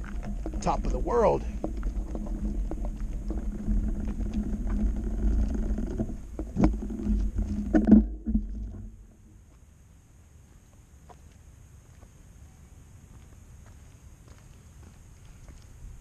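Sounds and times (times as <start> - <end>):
wind rumbling on microphone: 0.0 - 9.5, 13.1 - 16.0
faint hiss: 9.3 - 16.0.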